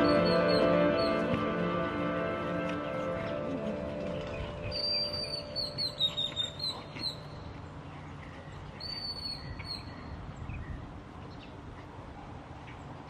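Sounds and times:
dogs play-fighting on gravel: 0:00.0 - 0:09.0
birds chirping: 0:00.0 - 0:11.9.

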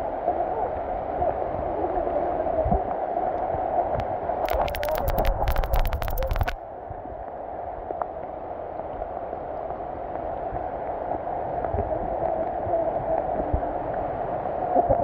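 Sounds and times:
sharp clicks: 0:04.4 - 0:06.6.

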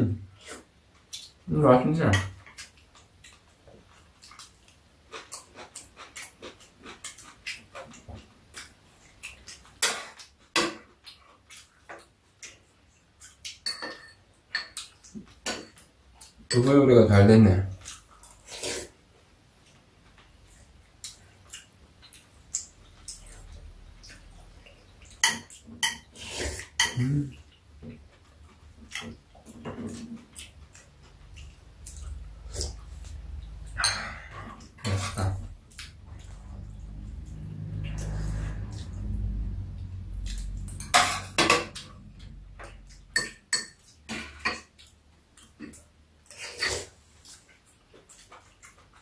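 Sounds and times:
metal spoons clinking on ceramic bowls: 0:13.6 - 0:14.9, 0:16.5 - 0:16.8, 0:33.7 - 0:35.4, 0:40.6 - 0:42.0, 0:42.6 - 0:44.6.

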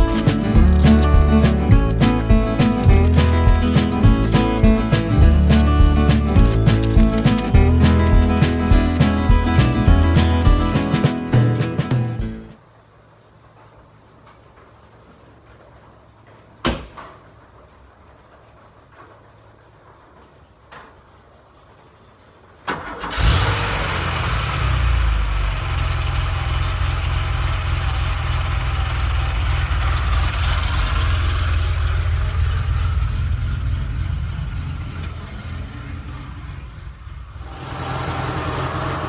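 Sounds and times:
starter motor cranking: 0:00.0 - 0:09.6
car engine idling: 0:22.8 - 0:39.0.

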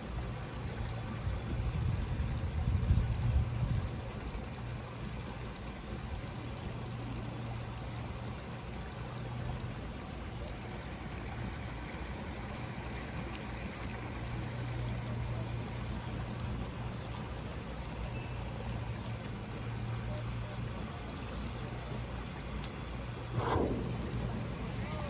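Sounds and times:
water running in shallow channel: 0:00.0 - 0:25.0
low rumble: 0:23.2 - 0:25.0.

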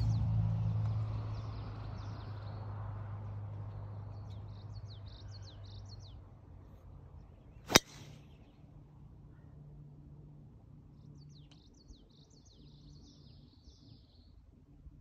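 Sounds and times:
birds chirping: 0:00.0 - 0:09.8, 0:10.8 - 0:14.6
low hum: 0:00.0 - 0:15.0
golf club striking ball: 0:07.7 - 0:08.2.

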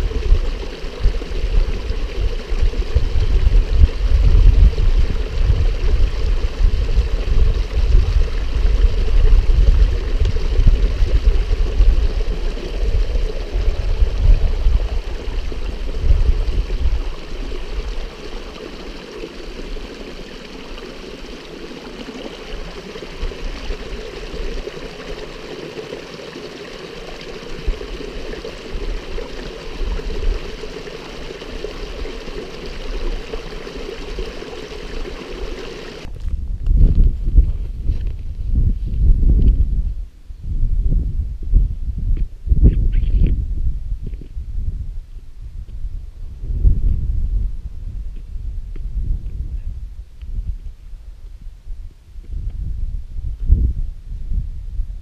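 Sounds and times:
stream trickling over rocks: 0:00.0 - 0:36.3
water bottle filling underwater: 0:00.0 - 0:38.2.

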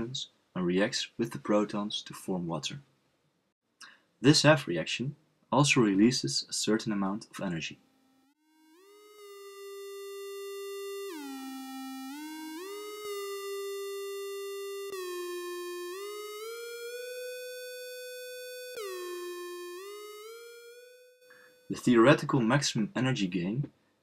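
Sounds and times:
theremin-like synthesizer melody: 0:07.9 - 0:21.8.

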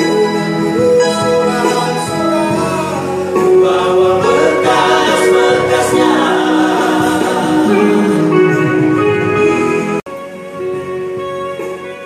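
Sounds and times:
male vocal group singing: 0:00.9 - 0:08.9.

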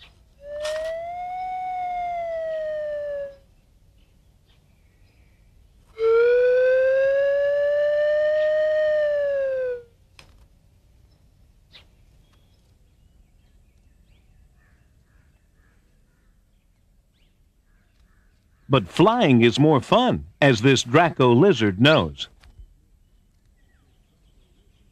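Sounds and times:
whistle-like tone: 0:00.4 - 0:03.4.

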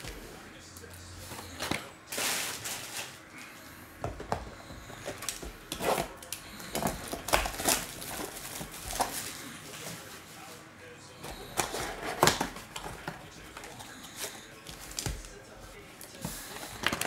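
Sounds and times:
plastic wrap crinkling: 0:05.2 - 0:10.6.

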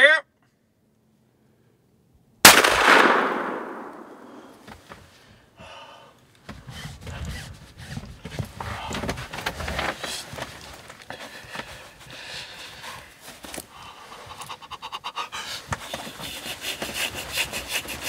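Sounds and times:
gunshot boom: 0:02.5 - 0:04.7.

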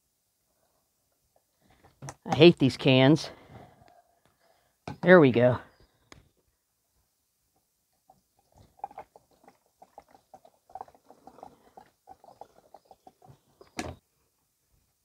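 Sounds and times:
gasoline gurgling from a can: 0:08.4 - 0:13.7.

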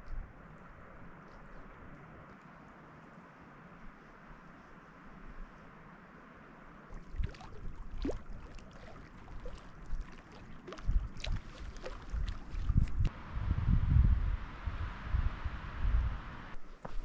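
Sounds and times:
small waves lapping on rocks: 0:06.9 - 0:13.0
wind buffeting microphone: 0:06.9 - 0:16.6.

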